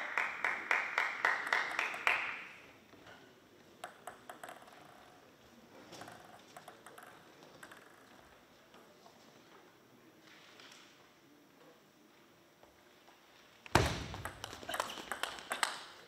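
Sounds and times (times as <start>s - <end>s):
hand claps: 0.0s - 2.6s, 14.3s - 16.0s
table tennis ball bouncing: 3.8s - 5.1s, 5.9s - 8.2s, 13.7s - 16.0s.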